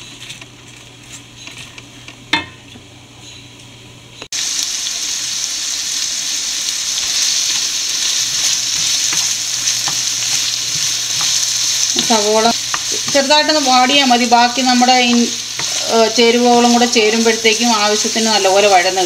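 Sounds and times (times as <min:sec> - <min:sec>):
onions sizzling in hot oil: 0:04.3 - 0:19.0
spatula tapping pan: 0:11.1 - 0:14.0.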